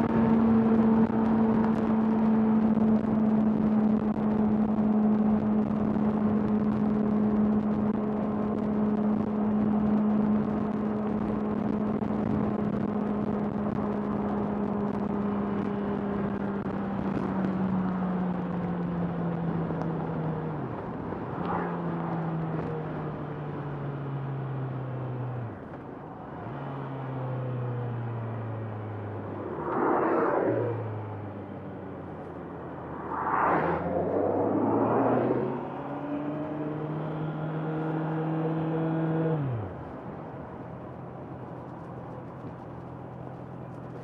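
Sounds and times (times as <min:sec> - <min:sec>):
wind noise: 0:00.0 - 0:24.0, 0:27.9 - 0:37.0.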